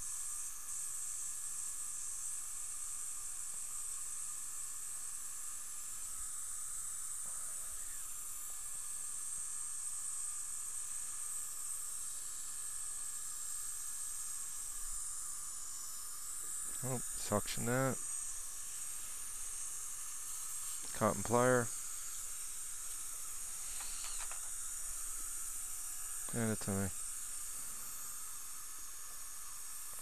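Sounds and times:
faint high whine: 0.0 - 30.0
dental equipment hissing: 5.9 - 8.8, 14.4 - 30.0.

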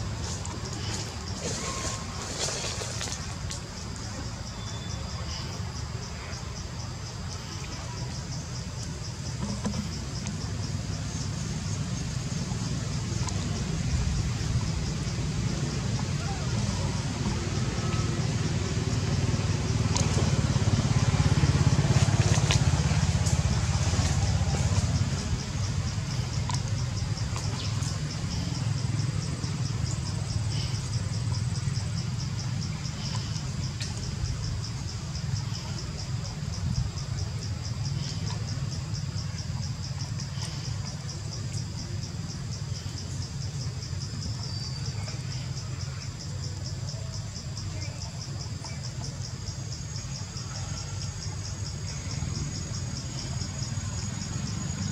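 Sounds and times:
insects chirping: 0.0 - 54.9
engine running with pulsing hum: 9.2 - 41.1.

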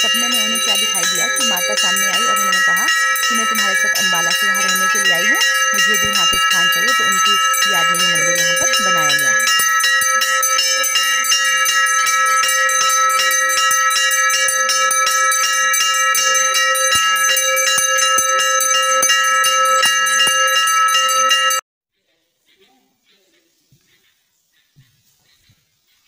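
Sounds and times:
bell rung rapidly: 0.0 - 21.6.

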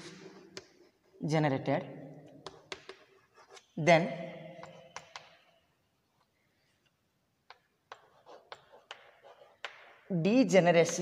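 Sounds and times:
chalk tapping on blackboard: 2.4 - 3.7, 7.4 - 10.1.

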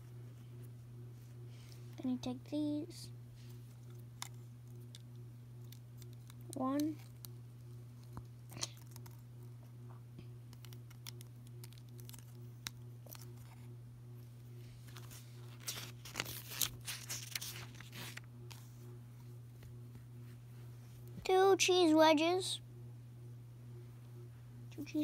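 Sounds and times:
steady low hum: 0.0 - 25.0
paper rustling: 14.7 - 18.8.

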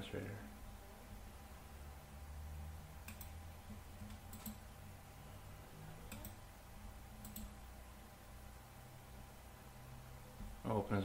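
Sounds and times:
low steady hum: 0.0 - 11.0
computer mouse clicking: 3.0 - 4.7, 6.1 - 6.4, 7.2 - 7.6.

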